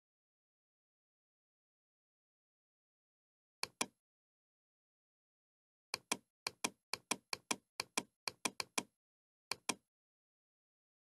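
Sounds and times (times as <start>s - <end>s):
computer mouse clicking: 3.6s - 4.0s, 6.0s - 8.9s, 9.5s - 9.8s.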